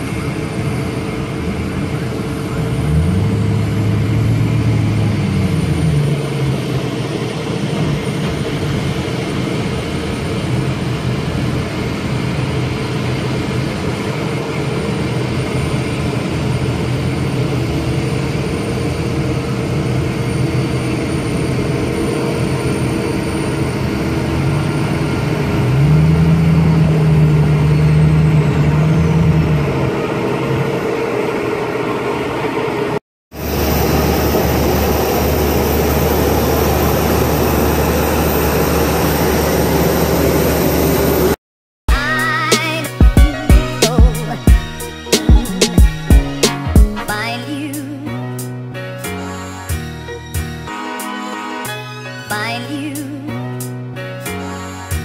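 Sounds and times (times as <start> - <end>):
deep engine drone: 0.0 - 41.4
jet engines roaring with high whine: 0.0 - 41.4.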